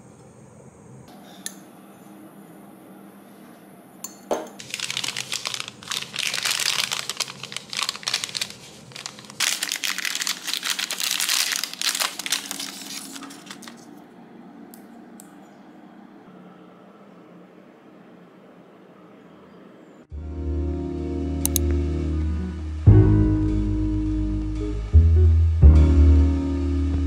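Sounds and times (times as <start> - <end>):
paper bag crinkling: 4.6 - 14.0.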